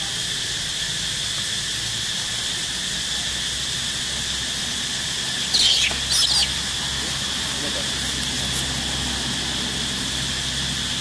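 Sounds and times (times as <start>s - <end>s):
insect drone: 0.0s - 11.0s
monkey squealing: 5.3s - 7.0s.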